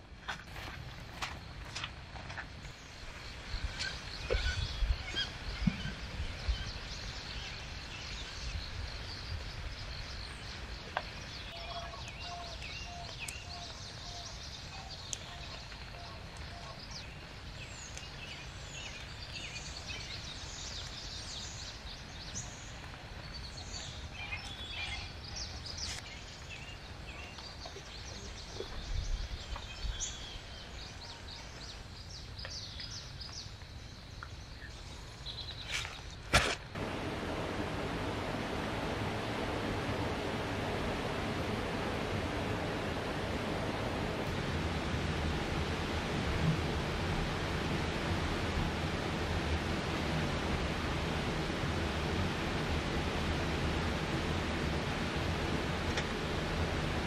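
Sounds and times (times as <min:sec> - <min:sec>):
footsteps and rustling in plants: 0:00.0 - 0:03.2, 0:34.9 - 0:48.1
birds chirping and trilling: 0:02.7 - 0:33.6
evenly spaced lower bird notes: 0:36.8 - 0:57.0.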